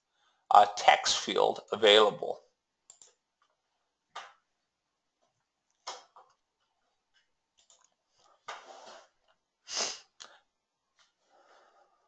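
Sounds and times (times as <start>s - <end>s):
person breathing: 11.2s - 12.0s.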